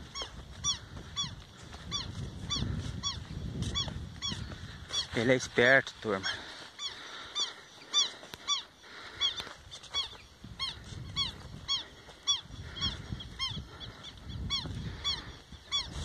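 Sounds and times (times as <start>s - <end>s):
bird honking yelps: 0.0s - 5.2s, 6.8s - 15.9s.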